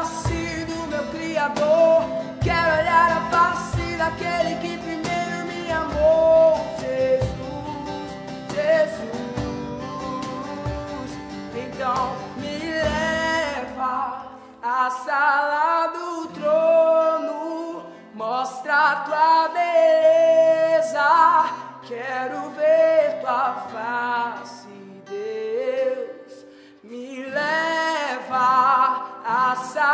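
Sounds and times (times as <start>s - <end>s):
cajon beat: 0.0s - 13.8s
acoustic guitar: 0.0s - 29.9s
man singing wordless lines: 0.0s - 29.9s.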